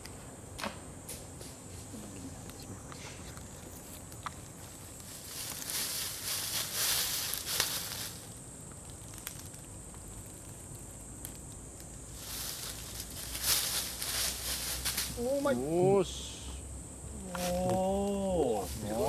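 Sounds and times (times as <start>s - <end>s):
dry leaves rustling: 3.4s - 15.6s, 17.2s - 19.0s
high-pitched insect drone: 4.6s - 19.0s.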